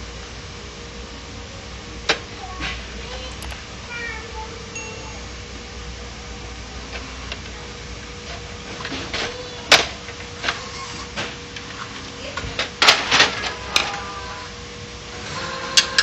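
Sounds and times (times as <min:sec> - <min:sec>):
faint steady hum: 0:00.0 - 0:10.4.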